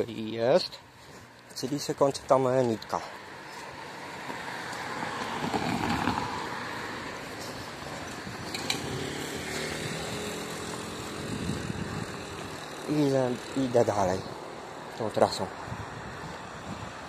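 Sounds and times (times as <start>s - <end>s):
motor vehicle passing by: 3.0s - 14.9s.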